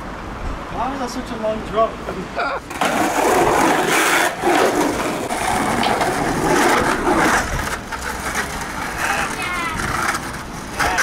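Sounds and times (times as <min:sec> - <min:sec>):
skateboard wheels rolling on concrete: 0:00.0 - 0:11.0
skateboard clacks: 0:02.7 - 0:11.0.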